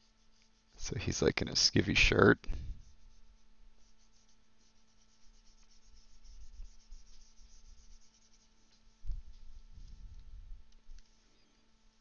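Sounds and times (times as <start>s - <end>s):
stylus scratching on drawing tablet: 0.0s - 9.0s.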